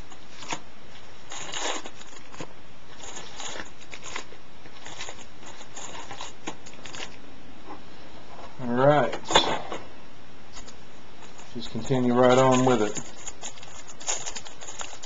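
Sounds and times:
steady hiss: 0.0 - 15.0
foil packs crinkling: 1.2 - 7.2, 10.6 - 15.0.

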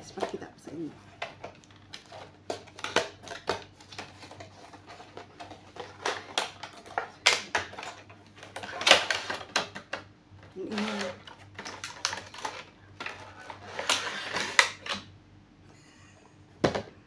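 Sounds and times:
packaging crinkles: 1.2 - 9.9, 10.6 - 15.0
packaging clicks and taps: 1.2 - 10.1.

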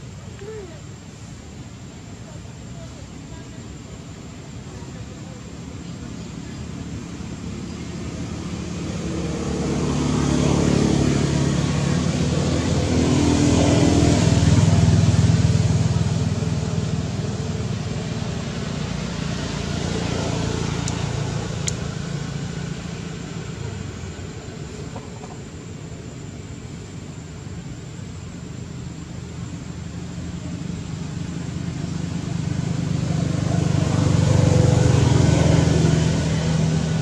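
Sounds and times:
vehicle engine passing: 3.4 - 37.0.

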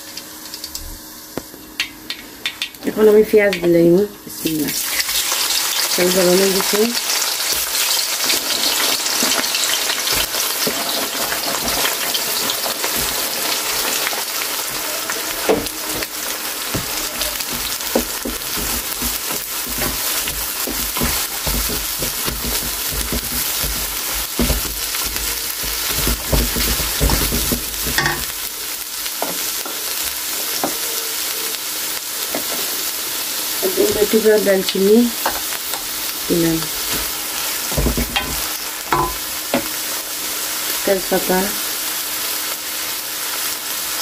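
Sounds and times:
onions sizzling in hot oil: 0.0 - 44.0
wooden spatula knocking pan: 15.5 - 28.4, 37.7 - 39.8.

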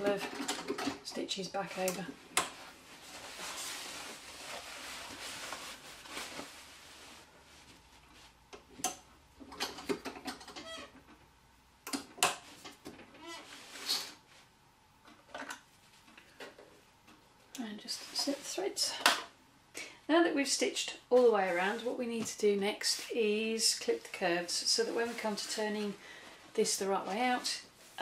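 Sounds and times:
fabric being handled: 2.6 - 8.4, 22.9 - 28.0
sharp clicks and knocks: 8.5 - 13.1.

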